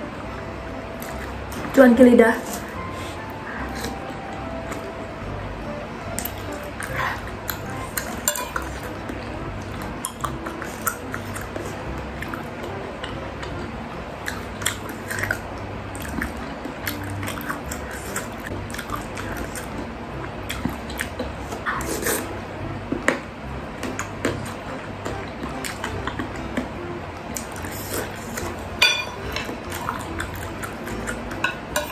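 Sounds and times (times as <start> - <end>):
electric fan hum: 0.0 - 31.9
chewing and slurping: 6.2 - 19.8, 20.4 - 22.4, 23.8 - 31.9.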